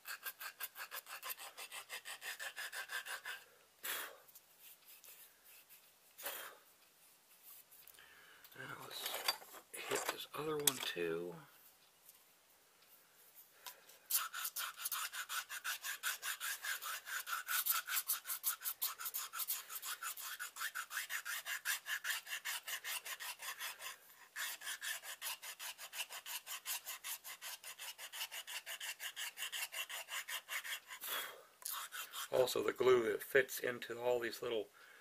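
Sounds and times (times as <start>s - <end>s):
file scraping back and forth: 0.0s - 3.5s, 14.1s - 32.8s.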